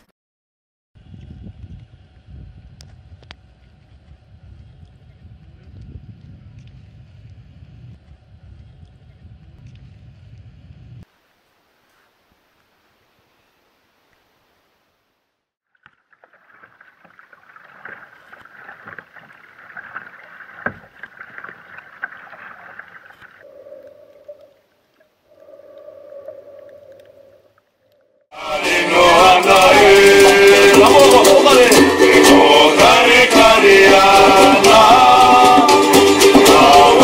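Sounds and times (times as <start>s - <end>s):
kayak paddle splashing: 15.6s - 23.5s
water dripping: 15.7s - 28.2s
men singing together: 28.3s - 37.0s
ukulele: 28.5s - 37.0s.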